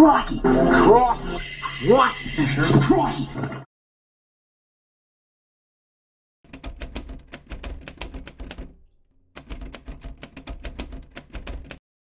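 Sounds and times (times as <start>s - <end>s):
typewriter keys clacking: 6.5s - 11.8s.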